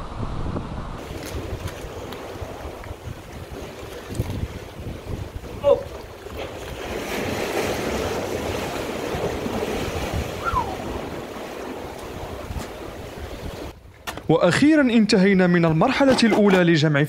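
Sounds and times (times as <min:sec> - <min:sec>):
sea surf washing against rocks: 0:01.0 - 0:13.8.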